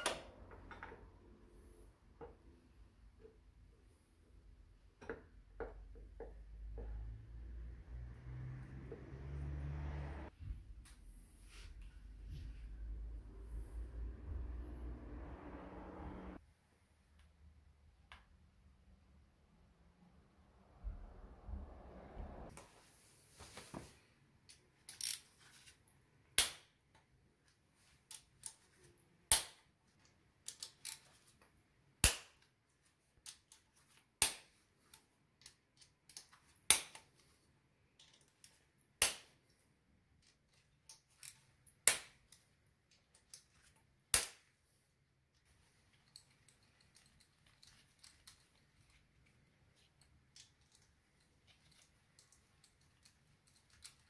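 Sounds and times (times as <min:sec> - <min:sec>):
small clicks and rattles: 0:45.4 - 0:54.0.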